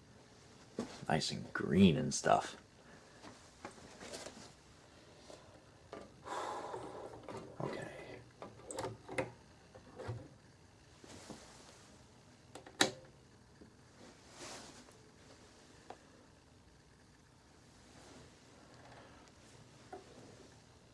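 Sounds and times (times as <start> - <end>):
record handling rustle: 3.2 - 4.6, 7.0 - 10.4.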